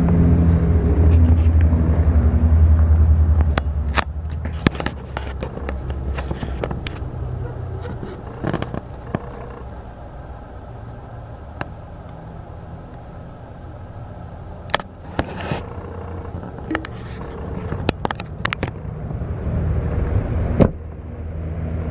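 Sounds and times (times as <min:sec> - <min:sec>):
low steady rumble: 0:00.0 - 0:21.9
knocks and clicks of movement: 0:03.4 - 0:09.8, 0:14.7 - 0:18.8.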